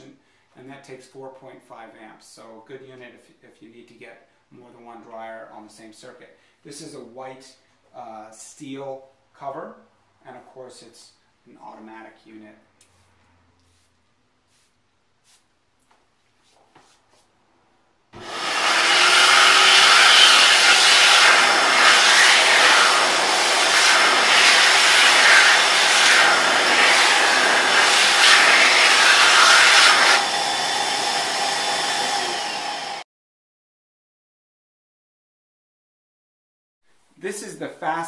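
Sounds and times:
hand dryer blowing: 18.2 - 33.0.

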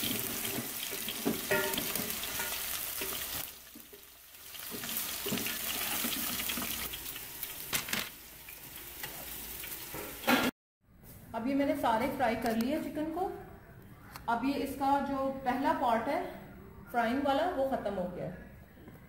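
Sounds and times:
chicken deep-frying in oil: 0.0 - 10.5.

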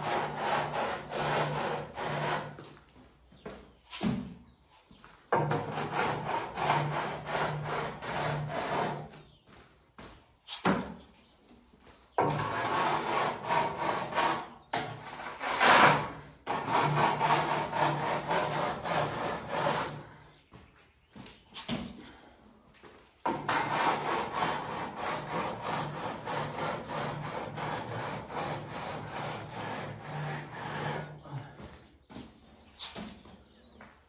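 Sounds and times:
straightedge scraping mortar: 0.0 - 2.8, 3.9 - 9.1, 12.2 - 20.1, 23.2 - 31.2.

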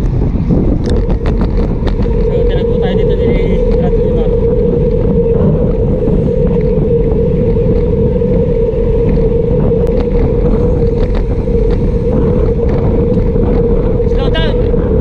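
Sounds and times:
low drone: 0.0 - 15.0
wind roaring over microphone: 0.0 - 15.0.

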